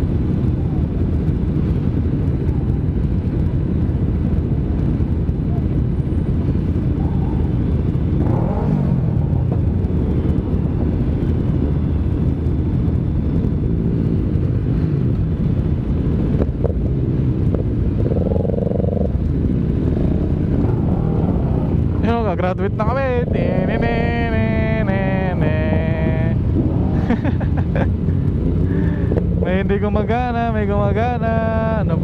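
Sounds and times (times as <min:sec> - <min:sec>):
motorcycle engines rumbling: 0:00.0 - 0:32.0.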